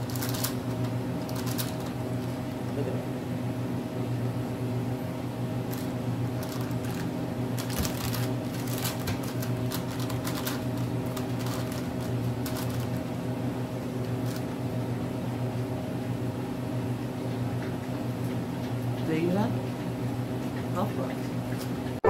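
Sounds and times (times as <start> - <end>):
candy wrapper crackling: 0.0 - 2.4, 5.6 - 13.2
low electrical hum: 0.0 - 22.0.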